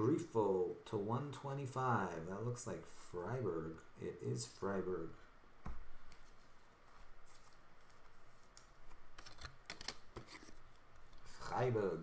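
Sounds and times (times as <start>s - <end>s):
light plastic rustling: 5.7s - 11.6s.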